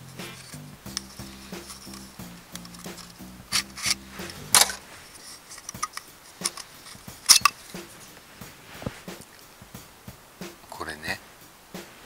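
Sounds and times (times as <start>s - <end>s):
background music: 0.0s - 12.0s
metallic clinks and scrapes: 0.2s - 8.2s.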